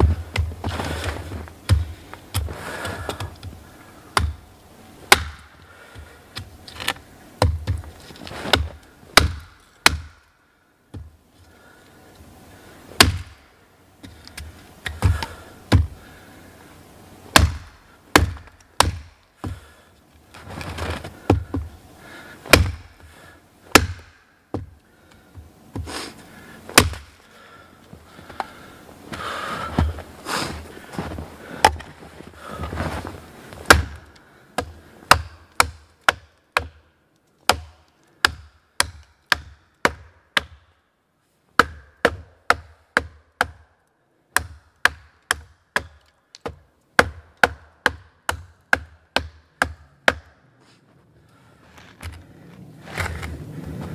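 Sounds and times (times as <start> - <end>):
hatchet chopping wood: 0.0 - 3.5, 4.1 - 4.4, 5.1 - 7.9, 8.5 - 10.3, 13.0 - 13.4, 14.0 - 16.0, 17.3 - 19.7, 21.2 - 21.7, 22.5 - 23.1, 23.7 - 26.0, 26.7 - 27.2, 31.6 - 31.9, 33.6 - 36.8, 37.4 - 40.7, 41.6 - 43.7, 44.3 - 50.4.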